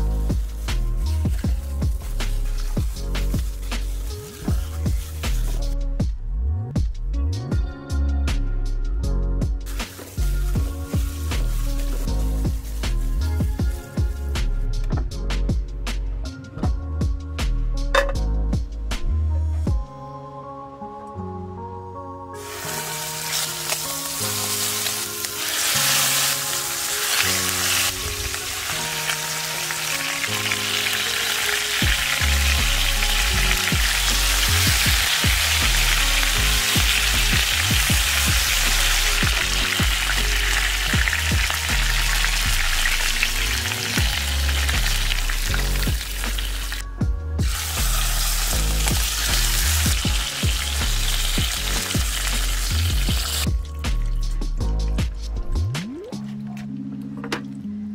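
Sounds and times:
chicken sizzling in hot oil: 0:00.0 - 0:05.8, 0:09.6 - 0:14.2, 0:22.4 - 0:46.8, 0:47.4 - 0:53.5
background music: 0:00.0 - 0:57.9.

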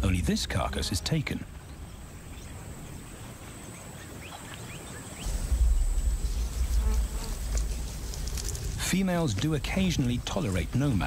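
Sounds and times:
insects buzzing: 0:00.0 - 0:11.0
deep low rumble: 0:05.2 - 0:10.3.

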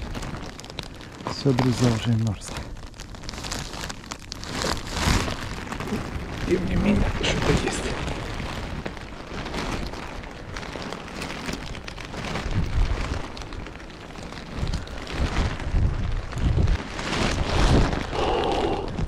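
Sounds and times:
rain and graupel falling: 0:00.0 - 0:19.0
wind gusting on microphone: 0:04.8 - 0:19.0.

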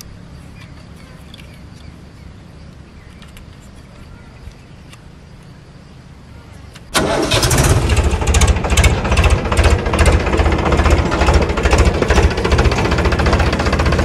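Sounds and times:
low steady rumble: 0:00.0 - 0:14.0
diesel tractor engine clattering: 0:06.9 - 0:14.0.

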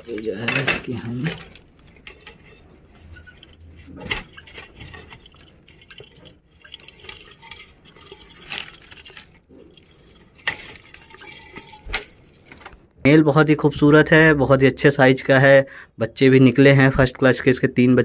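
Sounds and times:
wire cage rattling and clinking: 0:06.8 - 0:12.7.

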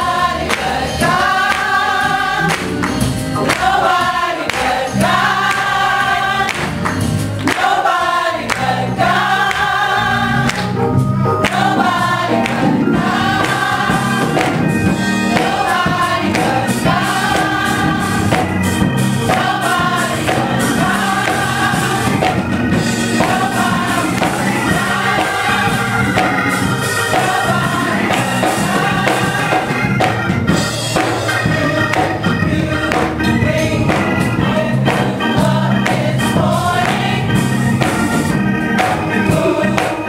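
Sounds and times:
congregation and children singing: 0:00.0 - 0:40.0
hand-clapping in time: 0:00.4 - 0:00.8, 0:01.4 - 0:10.8, 0:11.4 - 0:16.6.

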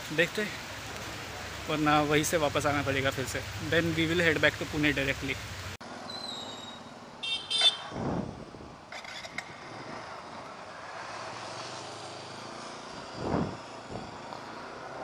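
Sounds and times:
wind buffeting microphone: 0:07.8 - 0:10.1, 0:12.8 - 0:14.3.

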